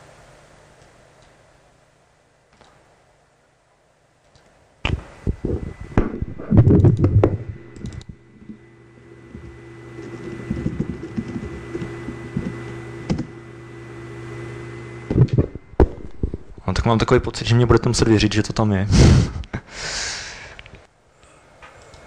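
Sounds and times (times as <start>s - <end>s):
steady low hum: 0.0s - 22.0s
faint high whine: 4.8s - 19.3s
laptop keyboard typing: 9.3s - 13.3s.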